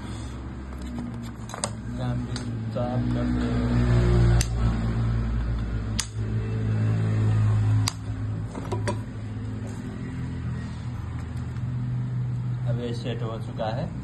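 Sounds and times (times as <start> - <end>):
low mechanical hum: 0.0 - 14.0
sharp metal clicks: 4.3 - 4.6, 5.4 - 6.2, 7.8 - 8.1.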